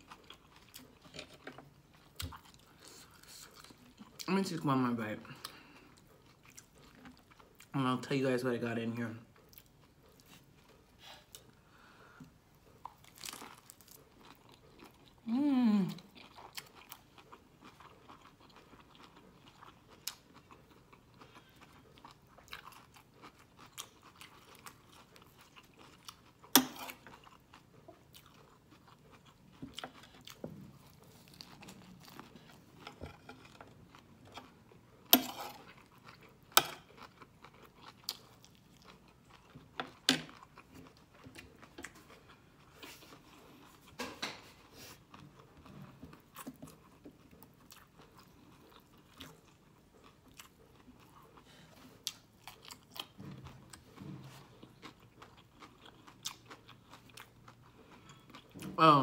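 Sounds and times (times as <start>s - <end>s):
soft chewing mouth sounds: 0.0s - 8.2s, 9.2s - 58.8s
crisp crunches of chewing: 12.6s - 15.3s, 16.0s - 58.6s.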